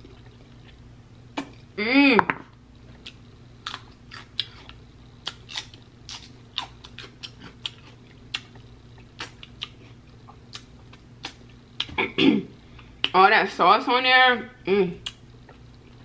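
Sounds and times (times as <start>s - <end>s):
person chewing with lip smacks: 3.0s - 12.0s.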